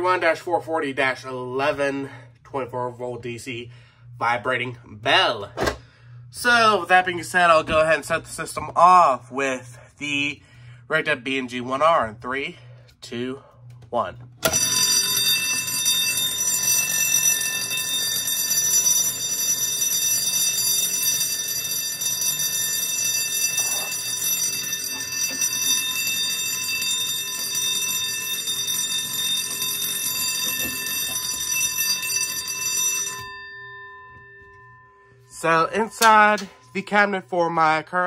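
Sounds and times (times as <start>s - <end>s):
fire alarm bell ringing: 14.4s - 38.0s.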